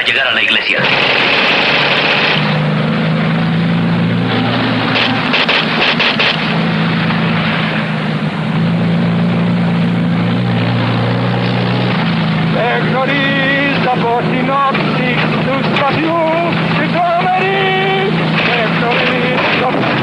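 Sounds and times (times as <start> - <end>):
sharp clicks: 0.8 - 2.7, 4.9 - 6.7
jeep engine droning: 0.8 - 20.0.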